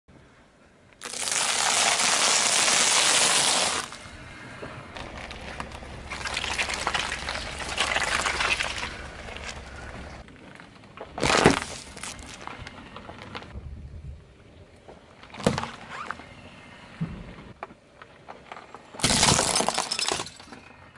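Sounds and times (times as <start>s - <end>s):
sharp crack: 1.0s - 4.0s, 11.0s - 12.5s
tyre crunching popcorn: 1.0s - 4.0s, 4.9s - 13.5s, 19.0s - 20.0s
low rumble: 3.9s - 10.3s, 11.8s - 15.1s
wet squishing of jelly: 5.0s - 10.2s.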